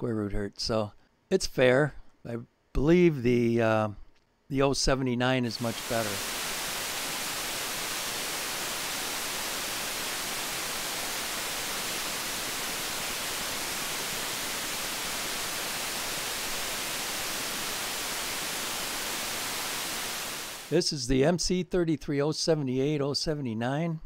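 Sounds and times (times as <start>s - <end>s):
steady electronic hiss: 4.8s - 21.0s.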